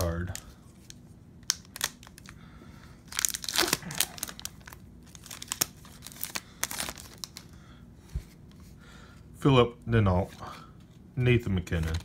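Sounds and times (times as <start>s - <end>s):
foil wrapper crinkling and tearing: 0.0s - 2.4s, 3.1s - 7.6s, 11.7s - 12.0s.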